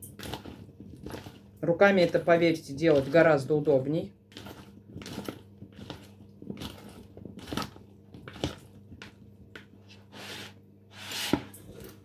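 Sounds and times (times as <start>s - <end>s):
hands mixing food in plate: 0.0s - 10.1s.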